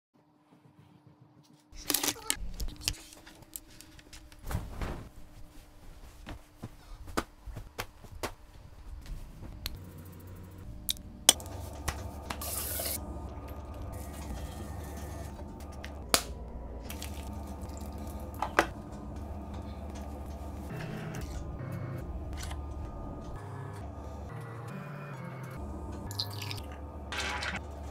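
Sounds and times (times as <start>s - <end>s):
low steady hum: 2.4s - 27.9s
bedding rustling: 4.2s - 9.6s.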